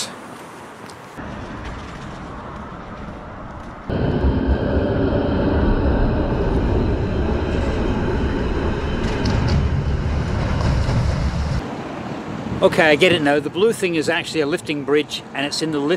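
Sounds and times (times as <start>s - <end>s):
tram high whine: 1.2s - 11.6s
tram wheels rumbling on rails: 1.2s - 11.6s.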